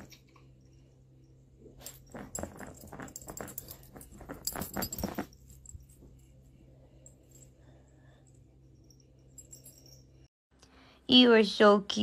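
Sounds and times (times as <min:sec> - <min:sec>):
collar tags jangling: 0:01.8 - 0:06.3, 0:08.8 - 0:10.3.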